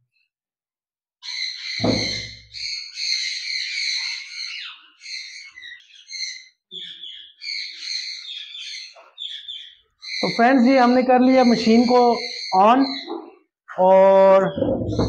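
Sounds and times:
parrots calling: 1.2 - 13.5
low thump: 1.8 - 2.5, 14.6 - 15.0.

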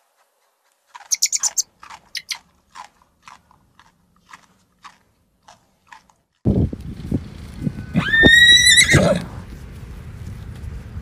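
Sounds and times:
rabbit chewing leaves: 0.1 - 7.9.

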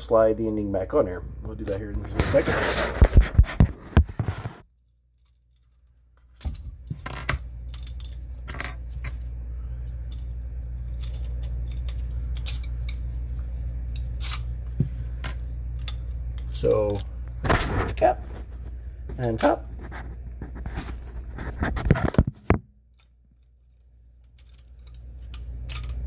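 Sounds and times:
steady low hum: 0.0 - 26.0
small metal parts clinking: 5.1 - 9.2, 9.9 - 13.1, 13.9 - 14.5, 22.8 - 26.0.

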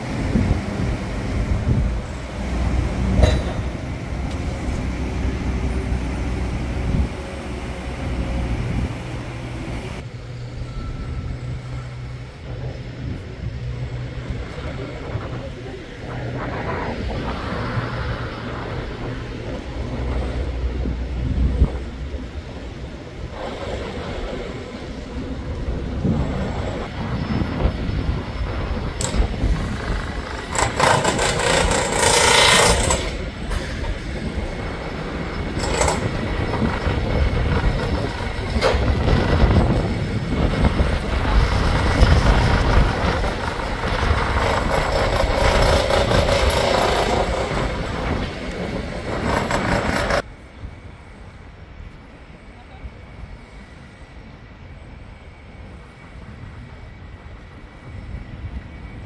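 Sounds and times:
traffic rumble: 0.0 - 59.0.

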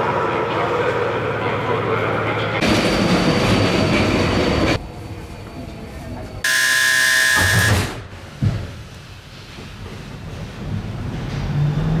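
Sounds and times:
train rushing rumble: 0.0 - 6.4, 8.6 - 12.0
steady buzzer tone: 6.4 - 8.0.

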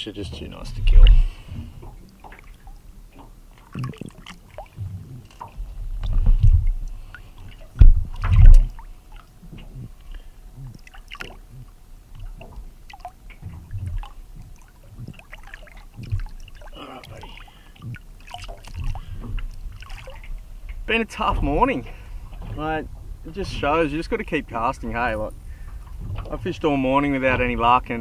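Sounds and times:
low thumping swells: 0.0 - 18.1
water splashing and sloshing: 0.0 - 28.0.

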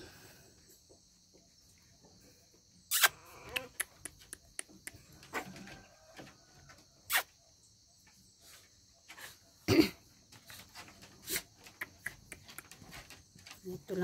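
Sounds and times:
high insect buzz: 2.8 - 4.1, 7.0 - 7.4
paws tapping on wire cage: 10.2 - 13.9.

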